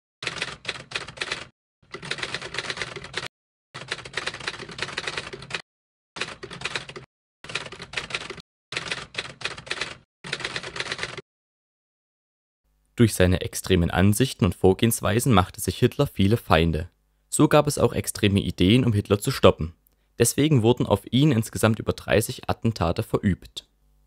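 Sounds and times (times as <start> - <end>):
typewriter keys clacking: 0.2 - 5.6, 6.2 - 11.2.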